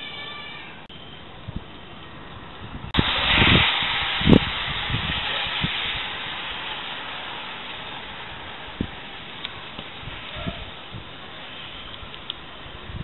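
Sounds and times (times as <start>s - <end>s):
steady rain: 2.2s - 13.0s
thunder crack and rumbling: 2.7s - 11.2s.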